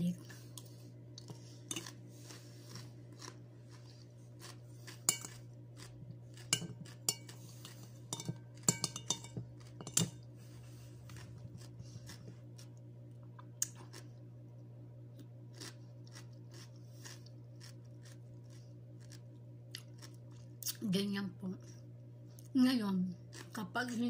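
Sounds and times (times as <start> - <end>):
steady low hum: 0.0 - 24.0
metal spoon clinking on bowl: 5.1 - 5.4, 6.5 - 10.2.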